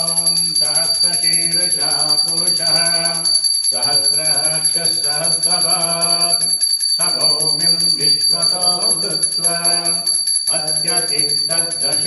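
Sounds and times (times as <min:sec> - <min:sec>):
hand bell ringing fast: 0:00.0 - 0:12.0
man chanting: 0:00.0 - 0:12.0.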